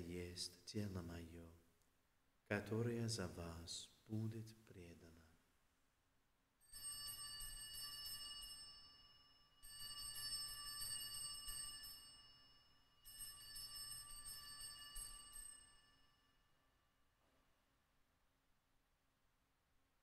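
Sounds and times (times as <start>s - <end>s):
altar bells jingling: 6.7s - 16.3s.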